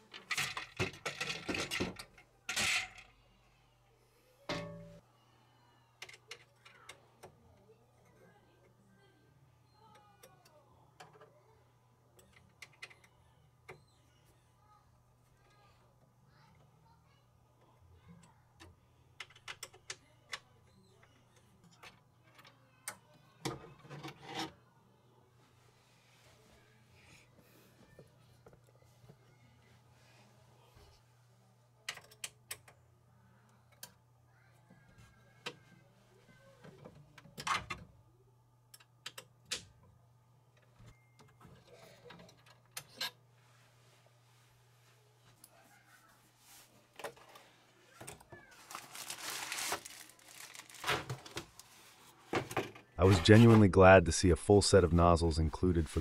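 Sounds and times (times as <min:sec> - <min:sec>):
hands clicking and tapping parts: 0:18.6 - 0:20.5.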